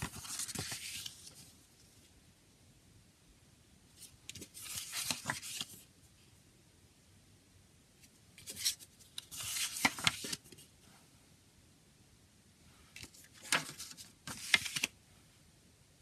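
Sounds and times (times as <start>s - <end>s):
paper pages turning: 0.0s - 1.5s, 4.0s - 5.9s, 8.4s - 10.7s, 13.0s - 15.0s.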